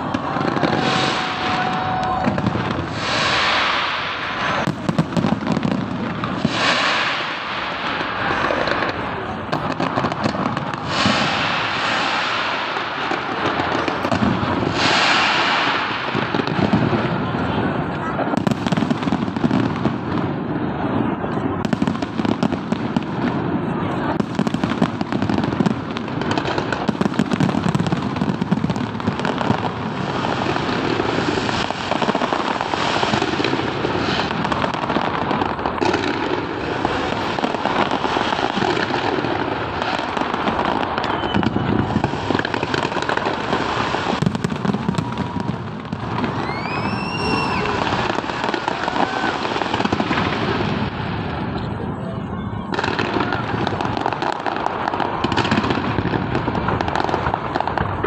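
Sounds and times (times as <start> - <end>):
rising firework whistle: 0.0 - 17.2, 27.3 - 51.0
fireworks crackling and popping: 0.0 - 58.0.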